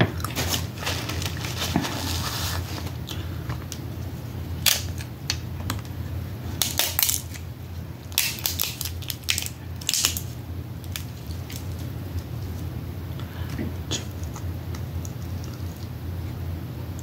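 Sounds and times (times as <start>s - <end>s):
crab shells cracking: 4.6s - 5.9s, 6.6s - 12.7s.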